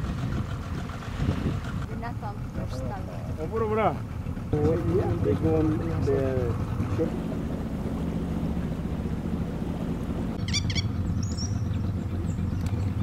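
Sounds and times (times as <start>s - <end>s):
engine idling: 0.0s - 13.0s
bird chirping: 10.4s - 13.0s.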